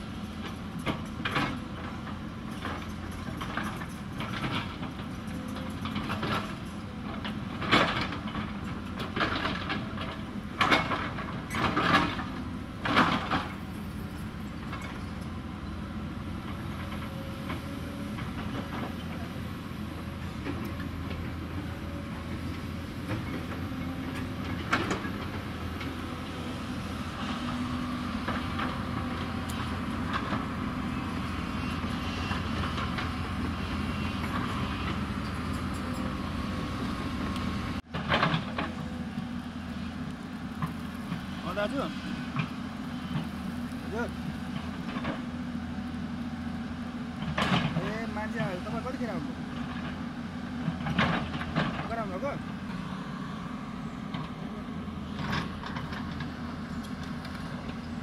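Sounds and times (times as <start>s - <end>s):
excavator diesel engine running: 0.0s - 58.0s
excavator bucket clanking: 0.3s - 22.4s.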